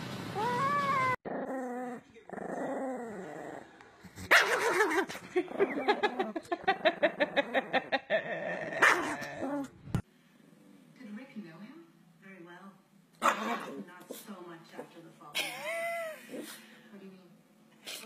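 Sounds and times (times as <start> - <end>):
small dog growling: 1.0 - 9.8, 13.2 - 13.8
small dog yapping: 8.8 - 9.5.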